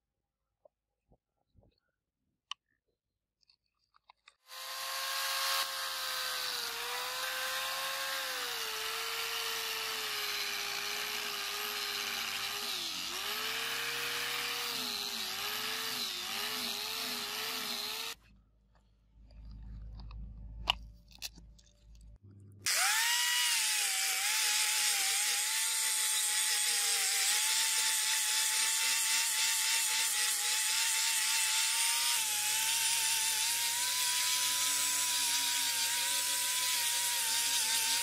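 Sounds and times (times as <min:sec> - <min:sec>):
angle grinder sanding metal: 0:04.5 - 0:18.2, 0:22.7 - 0:38.0.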